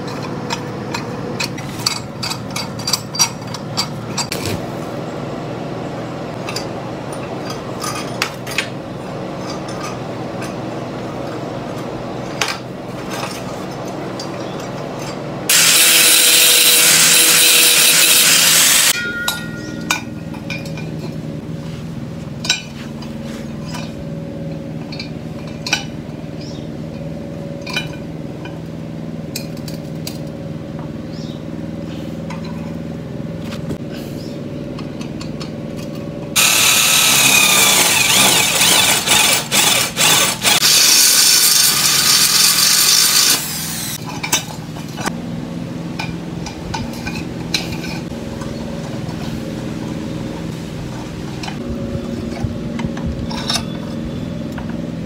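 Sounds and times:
angle grinder grinding steel: 15.5 - 19.8, 36.4 - 44.0
metal clinks: 18.9 - 21.2
low hum: 43.4 - 55.0.

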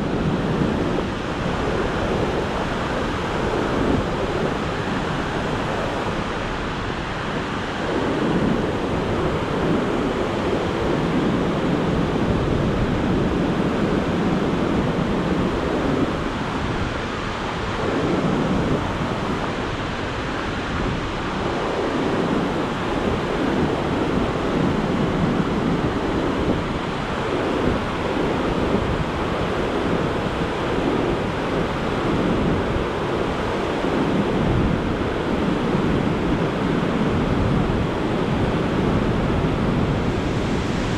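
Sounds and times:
river rapids roaring: 14.1 - 40.9.

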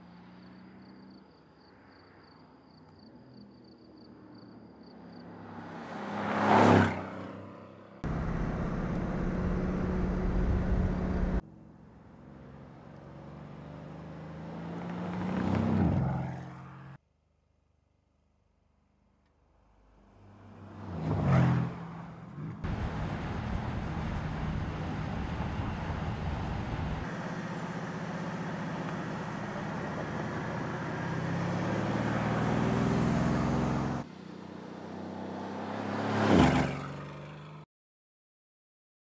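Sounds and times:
car engine passing by: 4.9 - 11.4, 12.3 - 17.0, 19.8 - 37.6
car engine accelerating: 8.0 - 17.0, 19.9 - 37.6.

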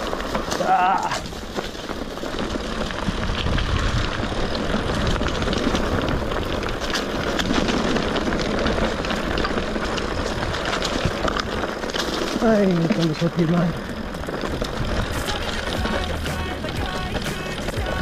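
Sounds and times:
bike rattling: 0.0 - 18.0
bike tyres crackling over leaves: 0.0 - 18.0
wind on microphone: 3.0 - 11.2, 14.4 - 16.1.

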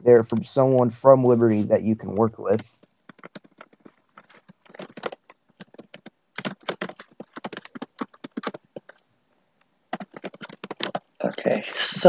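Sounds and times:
fast keyboard typing: 2.5 - 9.0, 9.9 - 11.6.

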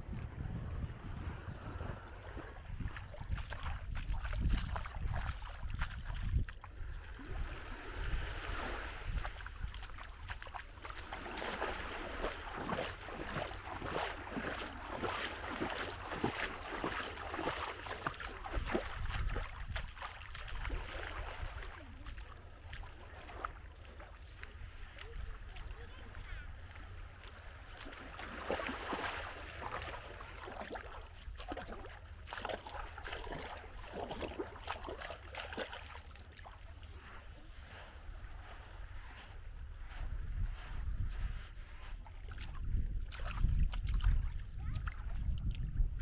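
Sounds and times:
wind buffeting microphone: 0.0 - 10.5, 11.3 - 22.3, 38.2 - 46.0
small waves washing on shore: 0.0 - 46.0.

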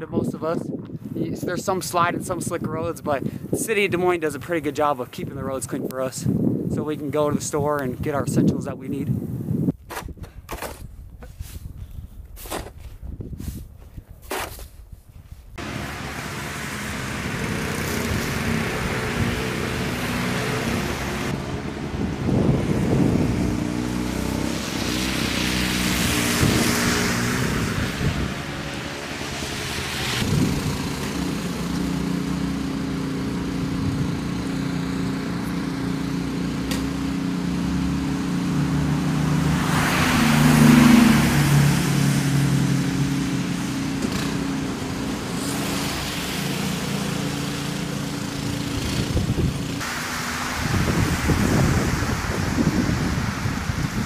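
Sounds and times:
snowblower engine running: 15.6 - 21.4, 29.2 - 39.7
cars passing on wet street: 15.6 - 54.0.

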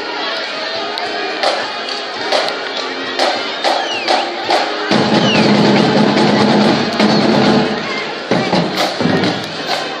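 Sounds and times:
crowd noise: 0.0 - 10.0
drum strokes: 1.4 - 1.7, 2.3 - 2.6, 3.2 - 10.0
marching band playing: 1.4 - 10.0.

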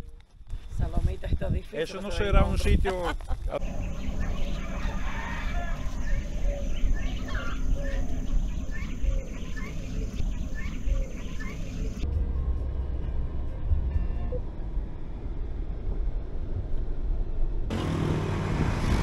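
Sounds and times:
steady low rumble: 0.4 - 17.7
birds chirping: 3.3 - 12.0.

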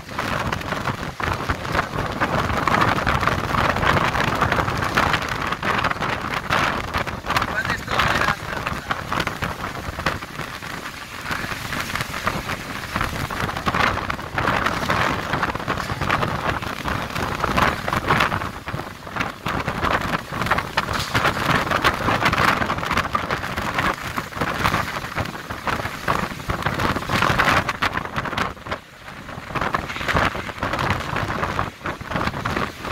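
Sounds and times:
storm wind and rain: 0.0 - 32.9.

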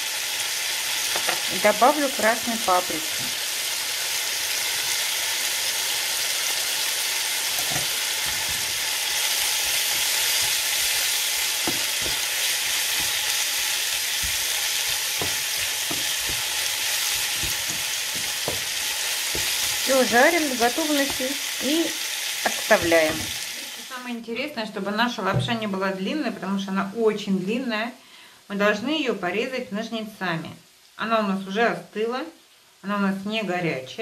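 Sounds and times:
vegetables sizzling in frying pan: 0.0 - 24.2
spatula scraping and knocking pan: 7.5 - 21.4, 22.6 - 23.4.

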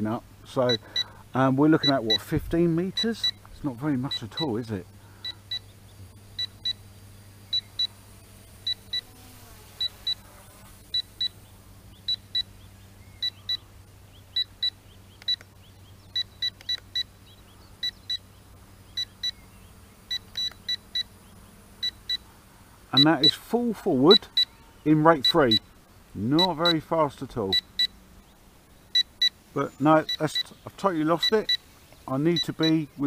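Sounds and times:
controller beeping: 1.8 - 2.3, 25.1 - 25.6.

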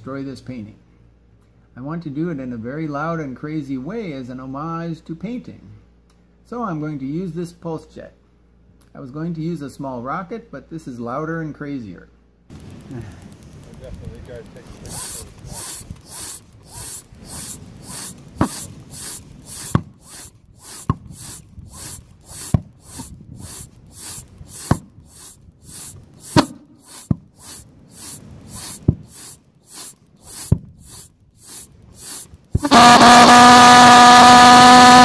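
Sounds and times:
sharp click: 12.5 - 32.7
pulse jet hissing puffs of air: 12.5 - 34.9.

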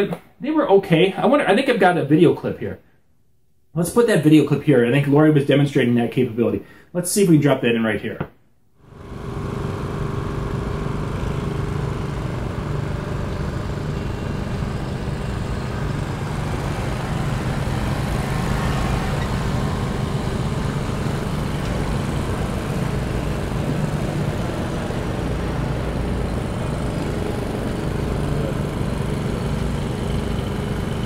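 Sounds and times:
lawn mower engine running: 8.9 - 31.0.

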